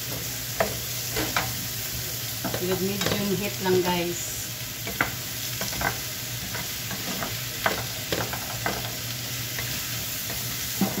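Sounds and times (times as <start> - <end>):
vegetables sizzling in a frying pan: 0.0 - 11.0
spatula scraping and knocking pan: 4.9 - 11.0.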